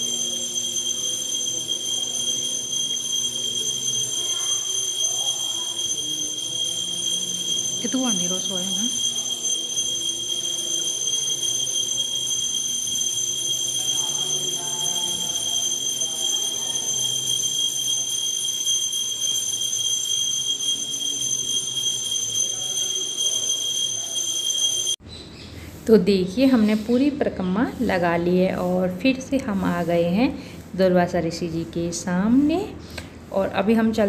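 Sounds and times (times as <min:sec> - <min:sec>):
high-pitched ringing tone: 0:00.0 - 0:25.0.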